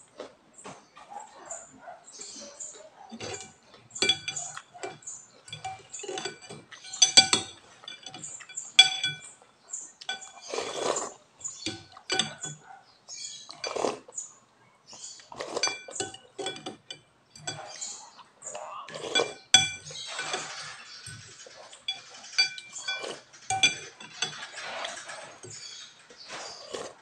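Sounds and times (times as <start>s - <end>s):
cutlery clinking on glass bowl: 3.1s - 9.4s, 10.0s - 12.7s, 13.5s - 14.0s, 15.2s - 18.1s, 18.9s - 27.0s
slurping soup: 10.1s - 12.1s, 13.4s - 14.2s, 15.1s - 16.5s, 17.6s - 27.0s.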